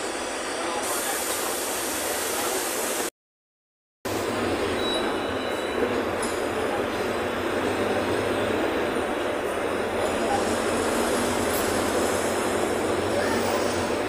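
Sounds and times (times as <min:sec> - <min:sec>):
bus engine running: 0:04.1 - 0:14.0.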